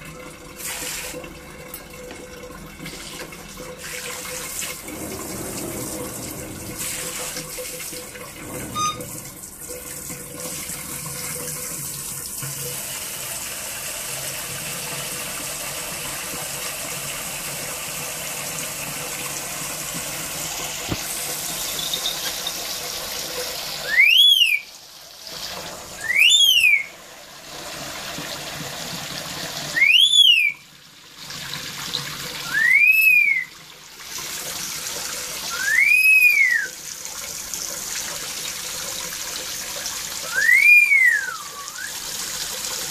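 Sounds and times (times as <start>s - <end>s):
running water: 0.0s - 42.9s
parrot shrill whistles: 8.8s - 9.1s, 23.8s - 24.7s, 26.0s - 26.9s, 29.8s - 30.6s, 32.4s - 33.5s, 35.5s - 36.8s, 40.3s - 42.0s.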